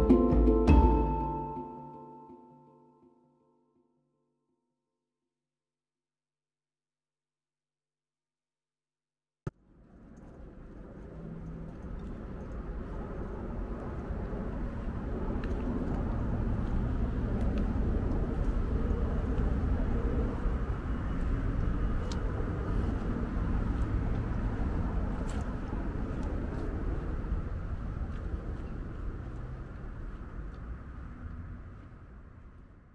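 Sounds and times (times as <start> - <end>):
passing vehicle engine rumble: 9.6 - 32.9.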